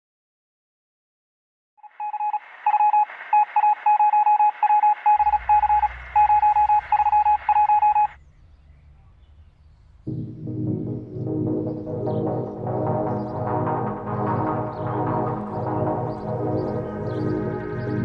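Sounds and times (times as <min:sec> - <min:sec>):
morse code beeping: 0:01.8 - 0:08.2
radio hiss: 0:01.8 - 0:08.2
low rumble: 0:05.1 - 0:11.4
music: 0:10.0 - 0:18.0.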